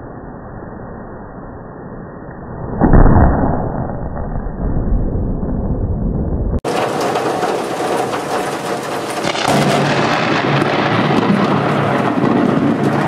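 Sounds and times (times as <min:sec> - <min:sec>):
wind: 0:00.0 - 0:13.0
thunder rumbling: 0:02.7 - 0:13.0
rain: 0:06.6 - 0:13.0.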